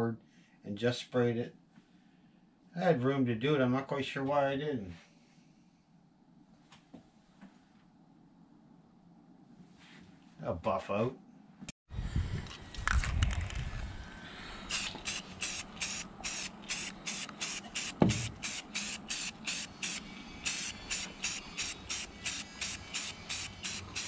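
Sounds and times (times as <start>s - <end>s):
spray paint can hissing: 14.6s - 24.0s
dull thump: 18.0s - 18.4s.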